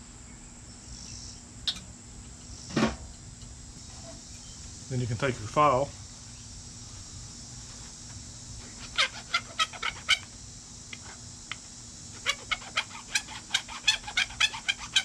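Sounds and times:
hand file rasping metal: 8.8 - 10.2, 12.2 - 15.0.

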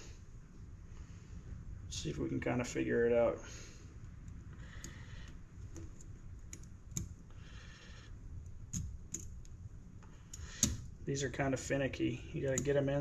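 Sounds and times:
light metal clicks: 12.4 - 12.8.

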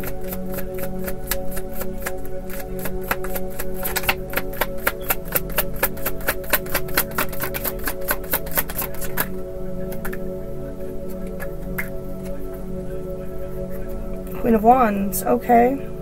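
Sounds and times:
cards being shuffled: 0.0 - 9.3
soft background music: 0.0 - 16.0.

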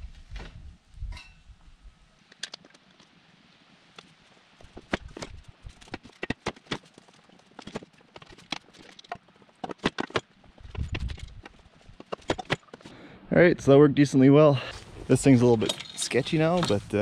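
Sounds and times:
steel parts knocking and clanking: 15.5 - 16.9.

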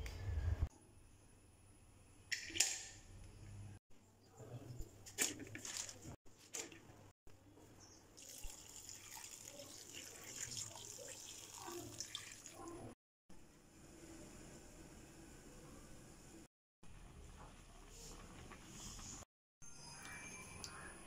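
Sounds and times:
water pouring into pot: 8.2 - 12.9.

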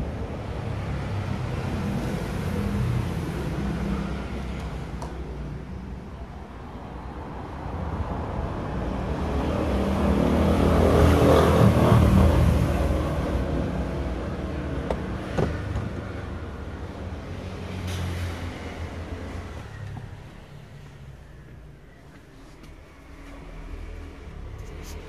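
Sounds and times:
vehicle passing by: 7.3 - 21.3.

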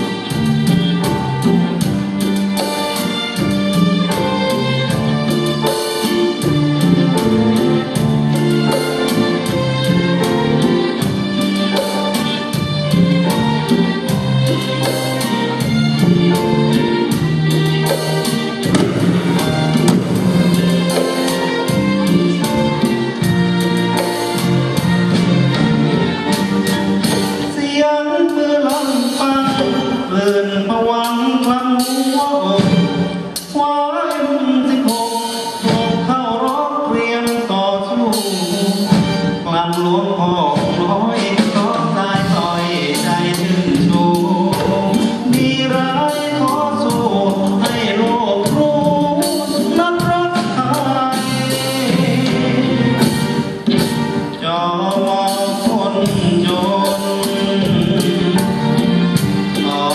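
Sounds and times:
orchestra with strings: 0.0 - 59.9
man singing into a microphone: 27.4 - 53.4, 54.3 - 59.9.

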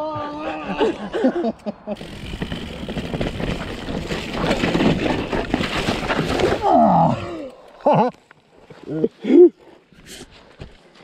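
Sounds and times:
bike tyres on rough ground: 2.0 - 9.0.

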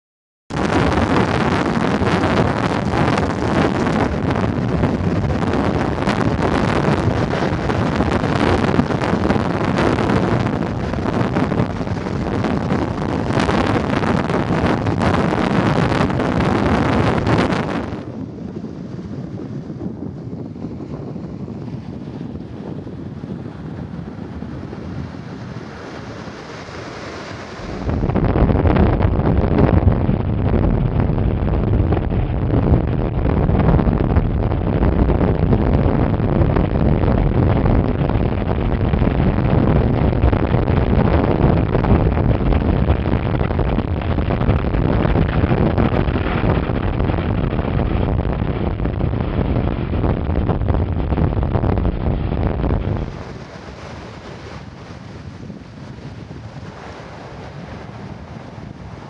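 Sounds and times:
wind buffeting microphone: 0.5 - 59.0.

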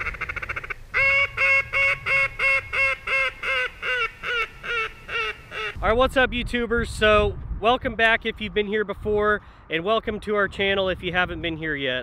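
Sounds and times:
duck quacking: 0.0 - 5.8.

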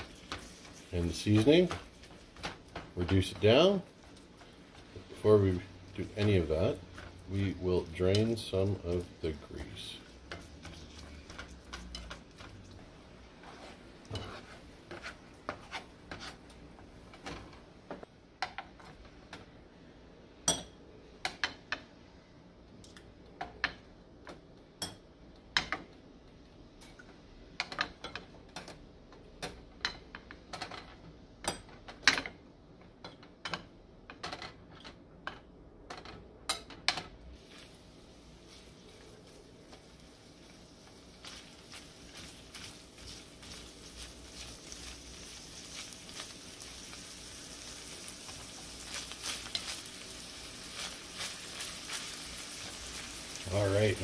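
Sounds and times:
spatula scraping and knocking pan: 0.0 - 12.6, 13.3 - 19.1.

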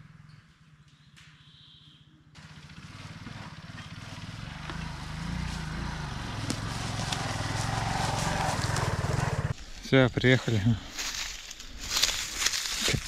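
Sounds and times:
small motorcycle engine approaching: 0.0 - 9.6.

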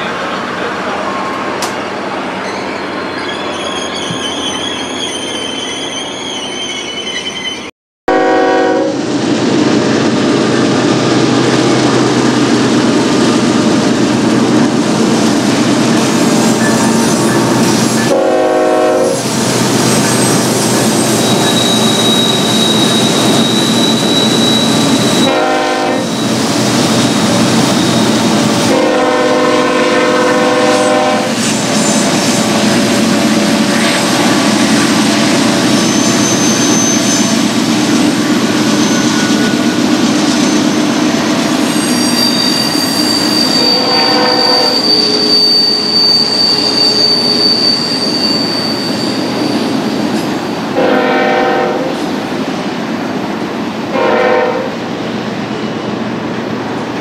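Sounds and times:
train wheels rumbling on rail: 0.0 - 7.7, 8.3 - 57.0
high wheel squeal: 1.8 - 7.7, 16.3 - 18.1, 19.2 - 25.3, 26.0 - 28.4, 35.5 - 37.5, 38.5 - 41.0, 41.6 - 50.3
locomotive horn blasts: 8.1 - 9.0, 18.1 - 19.2, 25.2 - 26.1, 28.6 - 31.4, 43.6 - 44.8, 50.8 - 52.0, 53.9 - 54.8.

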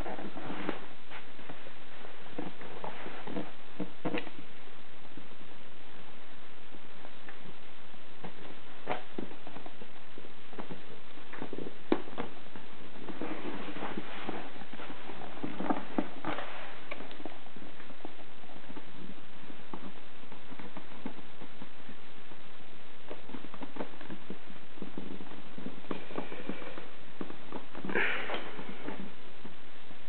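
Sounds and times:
steady hiss: 0.0 - 30.0
cardboard rustling and scraping: 13.0 - 18.8.

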